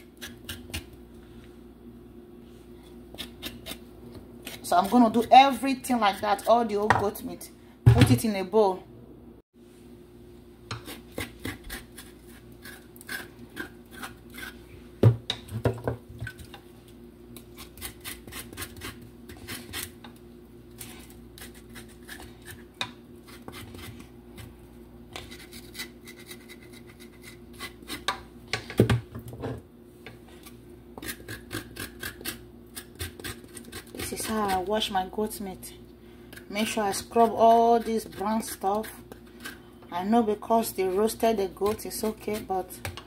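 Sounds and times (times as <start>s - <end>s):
knife scraping meat: 2.8s - 5.3s, 10.7s - 14.7s, 17.6s - 20.0s, 20.8s - 24.1s, 25.1s - 28.1s, 30.4s - 34.7s.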